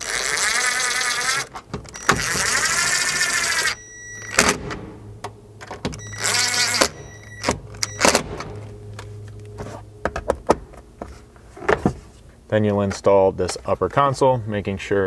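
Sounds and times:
cordless drill motor whir: 0.0 - 3.8, 6.0 - 6.9.

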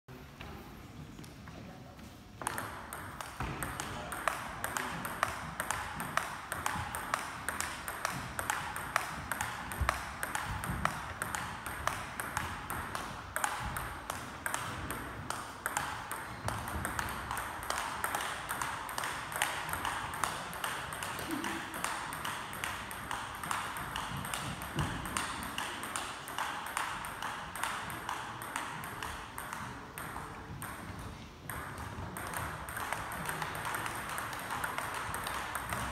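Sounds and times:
table tennis ball clicks: 2.4 - 35.9.

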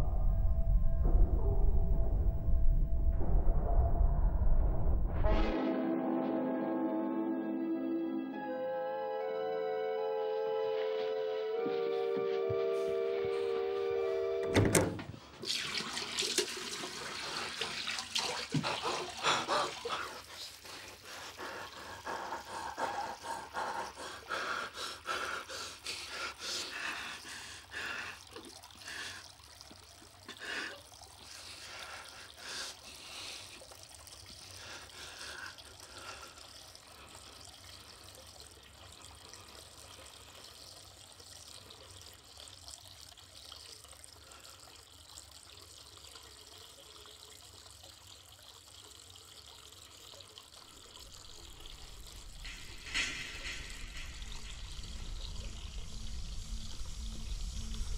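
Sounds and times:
tap water running into sink: 14.6 - 57.9.

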